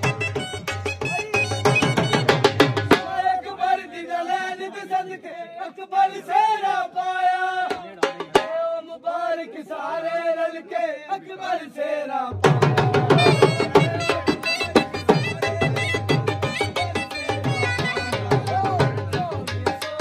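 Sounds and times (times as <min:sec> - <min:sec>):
dhol drum beat: 0:00.0 - 0:03.4, 0:07.7 - 0:08.8, 0:12.3 - 0:20.0
men singing chant-like melody: 0:02.8 - 0:20.0.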